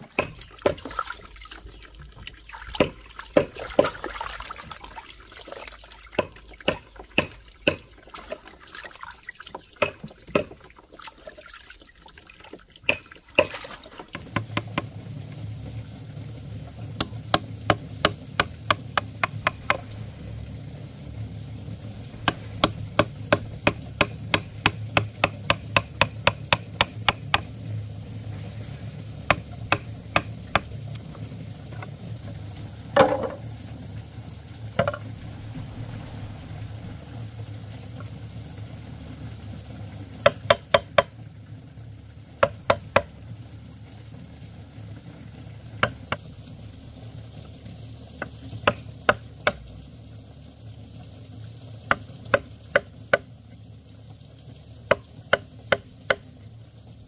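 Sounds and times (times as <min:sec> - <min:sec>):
utensil knocking: 0:00.0 - 0:01.0, 0:02.7 - 0:04.0, 0:06.1 - 0:08.5, 0:09.7 - 0:10.6, 0:12.8 - 0:14.9, 0:17.0 - 0:20.0, 0:22.1 - 0:27.5, 0:29.3 - 0:30.7, 0:33.0 - 0:33.4, 0:34.8 - 0:35.1, 0:40.2 - 0:41.1
faint frying hiss: 0:00.0 - 0:57.0
low hum: 0:14.2 - 0:40.4, 0:41.1 - 0:48.9.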